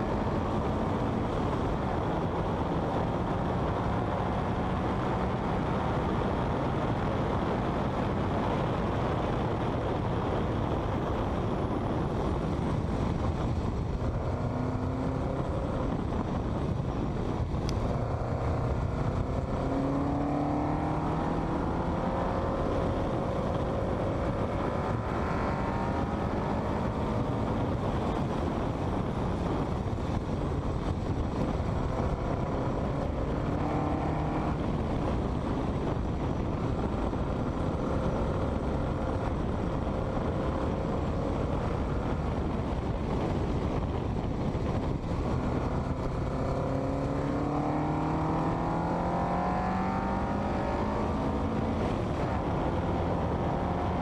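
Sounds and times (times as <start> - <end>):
car engine accelerating: 0.0 - 54.0
wind and road noise: 0.0 - 54.0.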